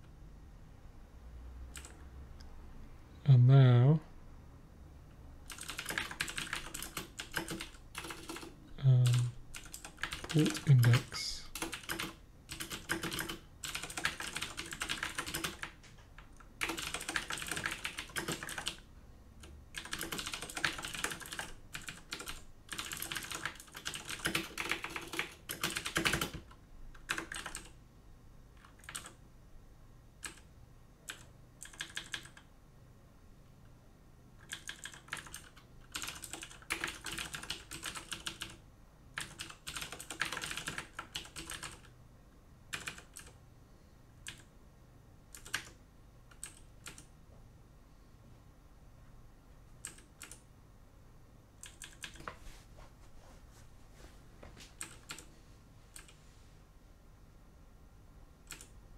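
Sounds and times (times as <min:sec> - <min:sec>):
typing on a computer keyboard: 0:01.7 - 0:02.0, 0:05.4 - 0:27.8, 0:28.6 - 0:29.2, 0:30.2 - 0:32.5, 0:34.4 - 0:41.9, 0:42.7 - 0:43.4, 0:44.2 - 0:44.5, 0:45.3 - 0:47.1, 0:49.8 - 0:50.5, 0:51.6 - 0:52.3, 0:54.8 - 0:55.3, 0:55.9 - 0:56.2, 0:58.4 - 0:58.8.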